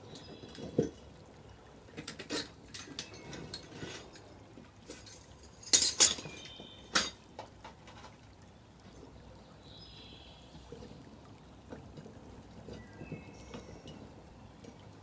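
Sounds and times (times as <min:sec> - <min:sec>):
metal tongs clanking: 0:02.1 - 0:03.8, 0:04.9 - 0:07.2.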